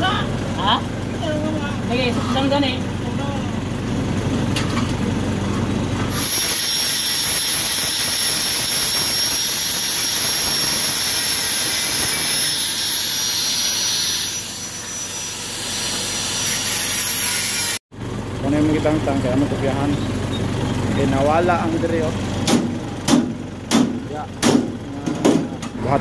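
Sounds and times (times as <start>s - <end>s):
angle grinder cutting steel: 6.1s - 17.8s.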